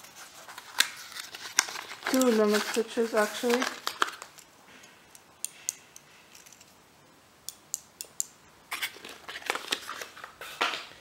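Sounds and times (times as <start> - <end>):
cardboard rustling and scraping: 0.0 - 4.3.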